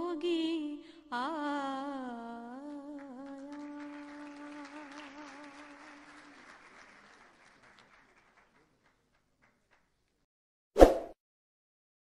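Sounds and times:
audience clapping: 2.7 - 10.2.

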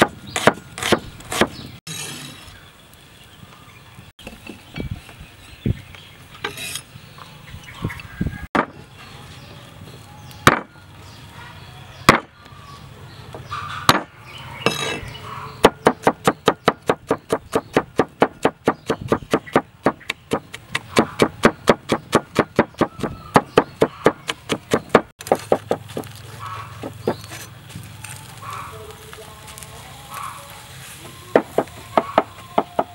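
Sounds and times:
cleaver chopping on wooden board: 0.0 - 1.6, 8.6 - 8.8, 10.5 - 10.7, 12.1 - 12.3, 13.9 - 14.1, 15.6 - 26.1.

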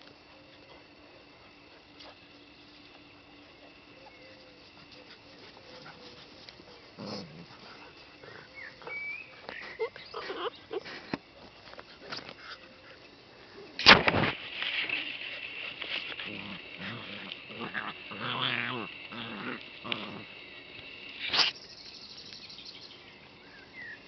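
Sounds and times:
puppies yipping and growling: 3.6 - 13.8, 14.9 - 20.4.

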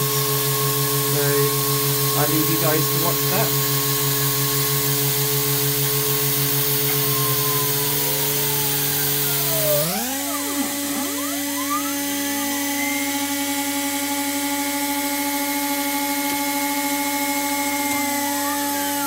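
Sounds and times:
router milling aluminium whine: 0.0 - 19.0.

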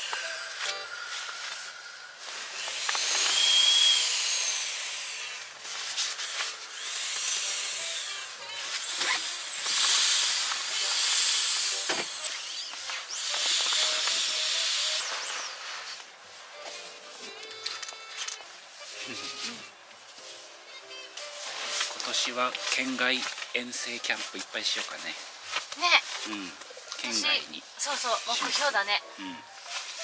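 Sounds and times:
air hissing from valve: 0.0 - 16.0
thin whistle: 3.3 - 4.1.

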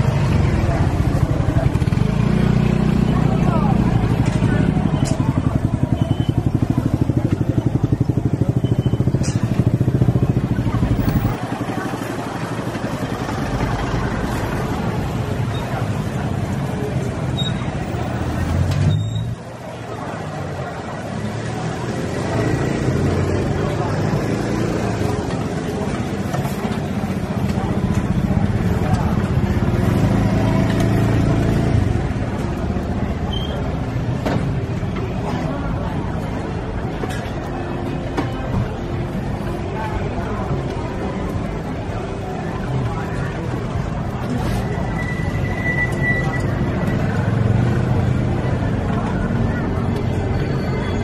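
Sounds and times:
street traffic noise: 0.0 - 51.0.

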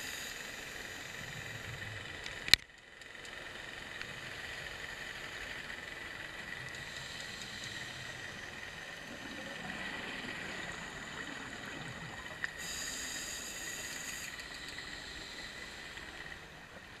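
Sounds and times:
underwater hiss: 0.0 - 2.0, 6.5 - 17.0
thin high whine: 5.0 - 17.0.

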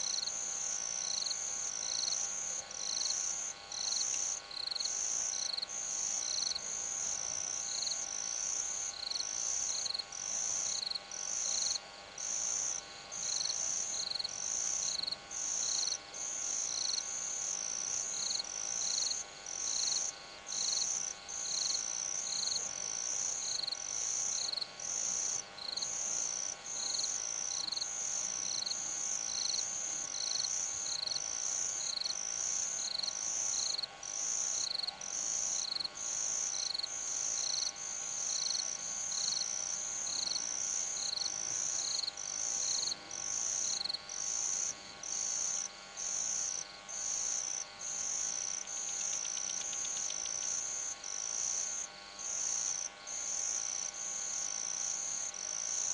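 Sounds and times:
crickets chirping: 0.0 - 55.9
faint steady hum: 0.0 - 55.9.

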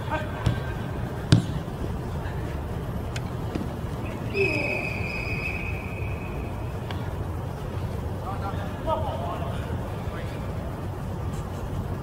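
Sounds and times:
low background rumble: 0.0 - 12.0
referee's whistle blast: 4.2 - 6.5.

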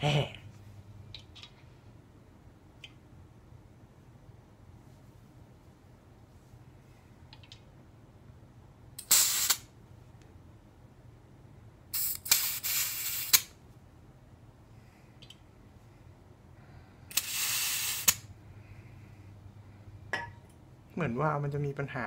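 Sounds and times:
gas hissing into magazine valve: 9.0 - 9.7, 11.9 - 13.5, 17.1 - 18.3.

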